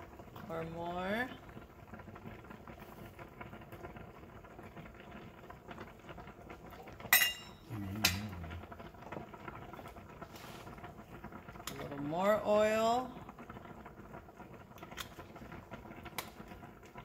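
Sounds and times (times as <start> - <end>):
kitchenware clinks: 7.1 - 8.2.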